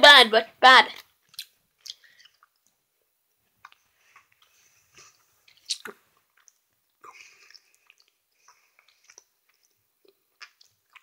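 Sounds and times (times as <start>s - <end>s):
person chewing wetly: 1.2s - 2.8s, 3.6s - 11.0s
small mouth clicks: 1.2s - 2.8s, 5.1s - 11.0s.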